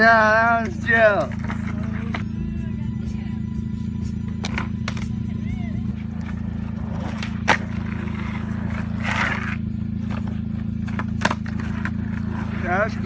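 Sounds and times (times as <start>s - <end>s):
skateboard rolling on asphalt: 0.0s - 2.3s, 5.9s - 13.0s
skateboard clacks: 4.4s - 5.2s, 6.2s - 10.3s, 10.9s - 12.6s.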